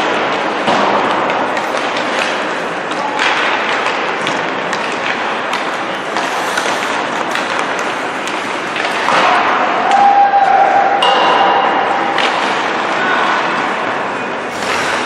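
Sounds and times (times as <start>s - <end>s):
skates scraping ice: 0.0s - 9.5s, 14.5s - 15.0s
pucks clacking off sticks: 0.0s - 10.0s
arena crowd hubbub: 0.0s - 15.0s.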